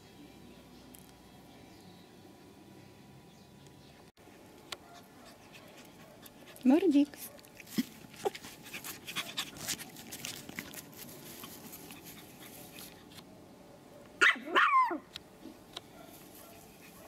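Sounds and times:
puppy yapping: 14.2s - 15.0s.

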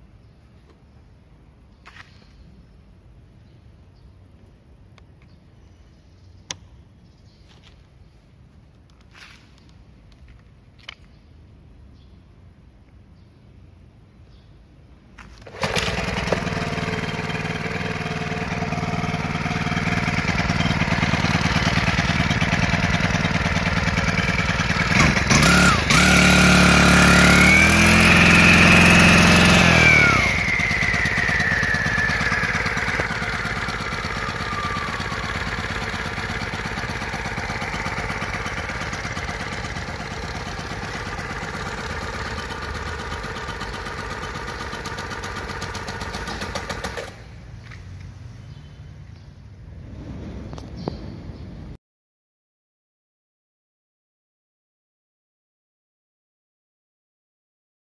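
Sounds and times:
power cutter engine running: 15.4s - 47.4s.

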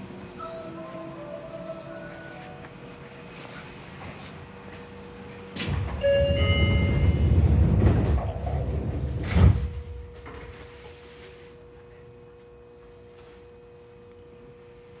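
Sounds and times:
train doors sliding rumble: 5.5s - 10.9s
doors shutting thud: 5.6s - 10.6s.

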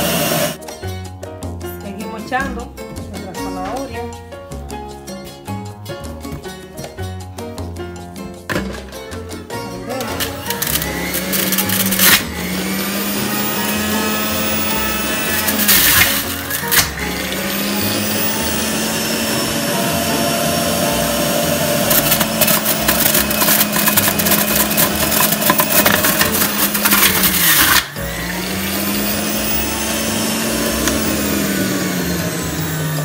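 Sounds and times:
juicer motor whine: 0.0s - 0.6s, 10.0s - 33.0s
carrots rasping against cutter: 10.1s - 20.2s, 21.7s - 32.4s
motor spinning down: 10.2s - 33.0s.

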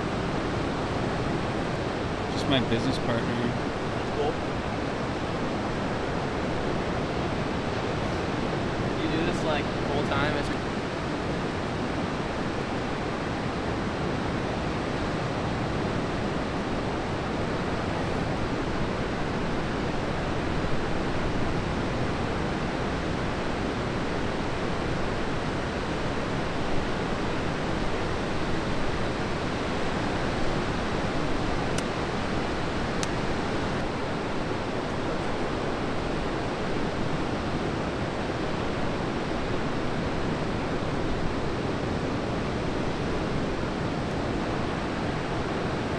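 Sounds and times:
ocean surf breaking on beach: 0.0s - 45.9s.

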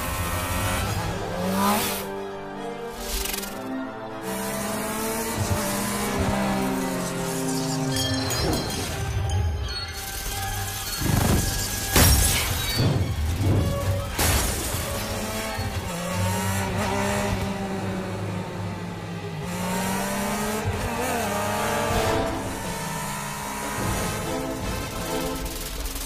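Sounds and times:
motorcycle engines revving: 0.0s - 2.2s, 2.9s - 8.9s, 11.0s - 11.6s, 13.1s - 26.0s
music: 0.0s - 26.0s
loud crashes: 11.0s - 15.6s.

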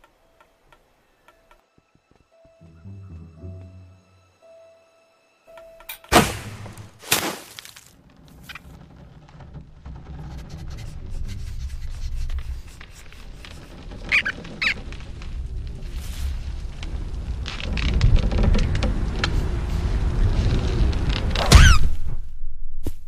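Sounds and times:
sharp loud impacts: 6.0s - 7.6s
short high-pitched squeaks: 13.4s - 14.9s.

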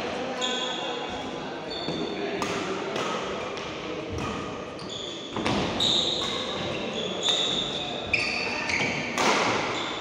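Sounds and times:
shoes squeaking on court floor: 0.4s - 2.3s, 4.2s - 10.0s
rackets striking shuttlecock: 5.4s - 6.7s, 9.1s - 9.7s.

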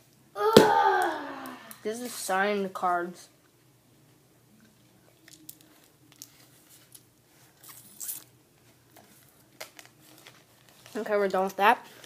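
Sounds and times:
rustling: 5.0s - 12.0s.

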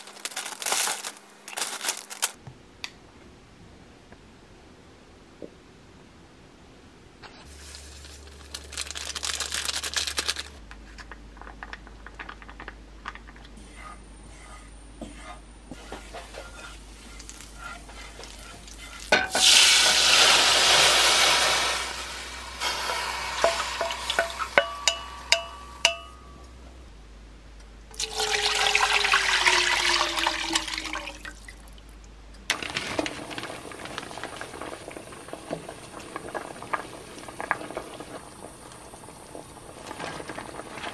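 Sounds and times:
liquid pouring into a pan: 27.9s - 31.6s
soup bubbling: 27.9s - 31.7s, 32.6s - 40.9s.

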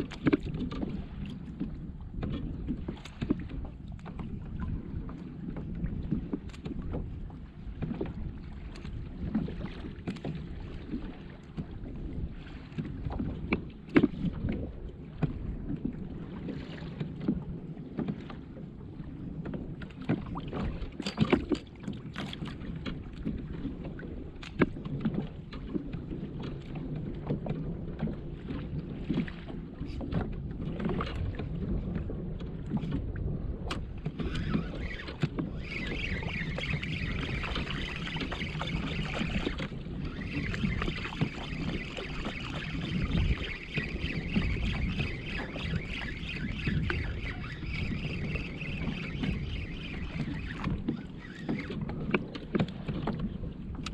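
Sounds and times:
water lapping against hull: 0.0s - 53.9s.

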